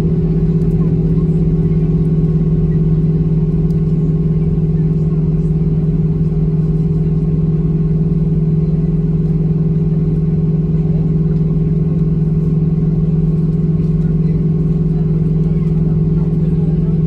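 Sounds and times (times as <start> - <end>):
airplane cabin engine drone: 0.0 - 17.0.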